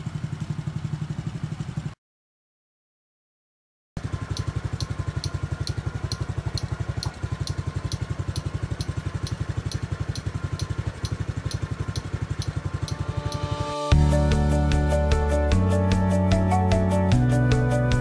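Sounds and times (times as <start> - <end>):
motorcycle engine idling: 0.0 - 2.0, 4.0 - 18.0
faint high tick: 4.2 - 13.6.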